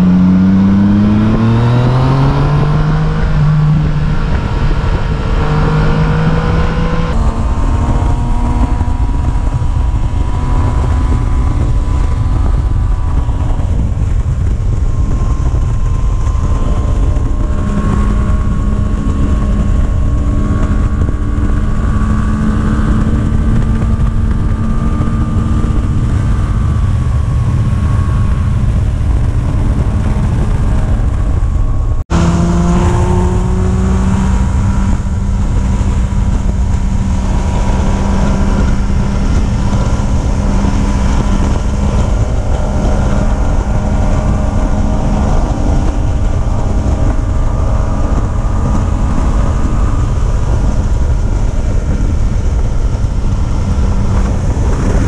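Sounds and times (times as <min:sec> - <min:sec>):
vehicle engine rumbling: 0:00.0 - 0:55.0.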